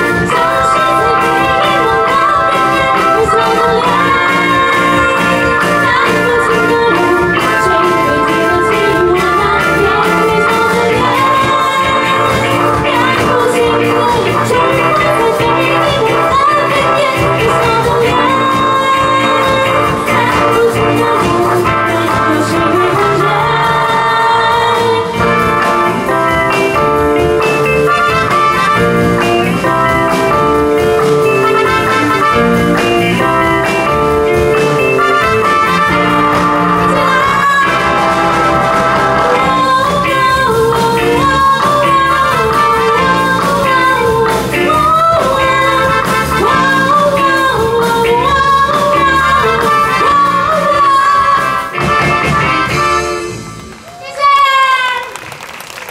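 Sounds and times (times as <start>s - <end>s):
woman singing into a microphone: 0.0s - 25.4s, 36.2s - 51.8s
electric bass: 0.0s - 53.8s
drums: 0.0s - 55.9s
electric guitar: 0.0s - 55.9s.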